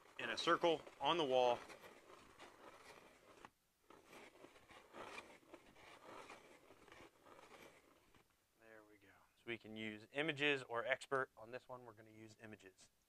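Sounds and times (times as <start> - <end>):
scanner scraping over drywall: 0.0 - 8.2.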